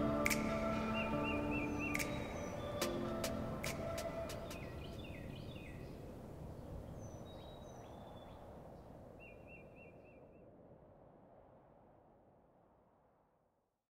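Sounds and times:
bird trill: 0:00.0 - 0:06.0
low rushing ambience: 0:00.0 - 0:06.5
faint bird chirps: 0:00.0 - 0:10.5.

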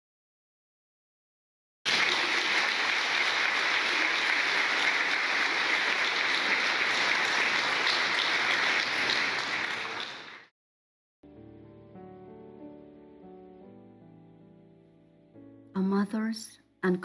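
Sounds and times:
crowd applauding: 0:01.9 - 0:10.5.

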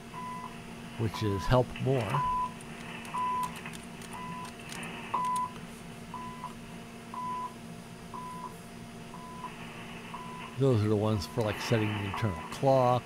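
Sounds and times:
faint steady hum: 0:00.0 - 0:13.0
short time signal pips: 0:02.2 - 0:03.5, 0:11.2 - 0:12.6
keyboard clicks: 0:02.5 - 0:05.6.

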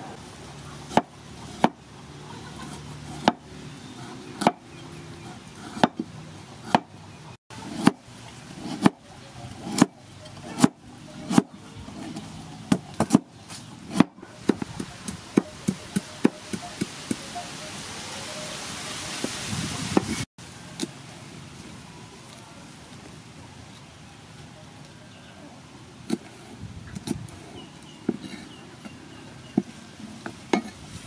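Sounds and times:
knife chopping on wooden block: 0:00.9 - 0:01.8, 0:03.0 - 0:03.4, 0:04.4 - 0:04.6, 0:05.6 - 0:06.9, 0:08.6 - 0:09.0, 0:09.6 - 0:13.3, 0:13.9 - 0:16.9.

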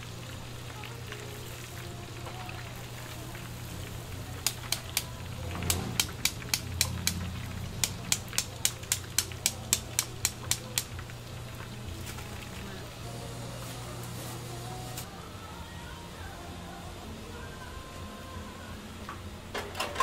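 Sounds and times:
utensil tapping rapidly: 0:04.4 - 0:11.0.

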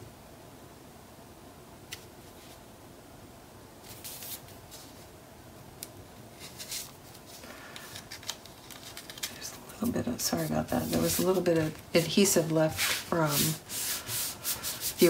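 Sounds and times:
paper rustling and sliding: 0:03.8 - 0:05.1, 0:06.3 - 0:15.0.

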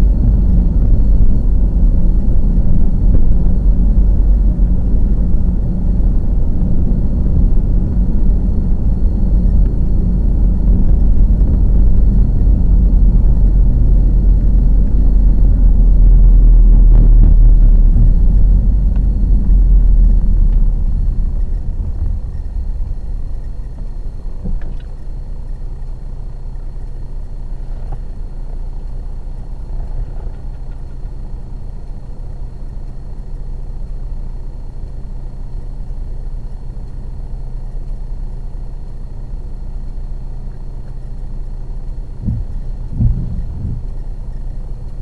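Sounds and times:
short low thumps: 0:00.0 - 0:25.1, 0:42.0 - 0:44.4
car engine idling: 0:00.0 - 0:45.0.

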